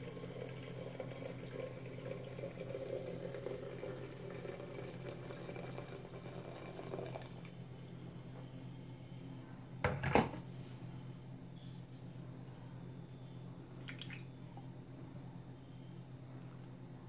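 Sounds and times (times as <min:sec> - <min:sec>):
coffee dripping into glass: 0:00.0 - 0:07.6, 0:13.7 - 0:14.3
steady low hum: 0:00.0 - 0:17.0.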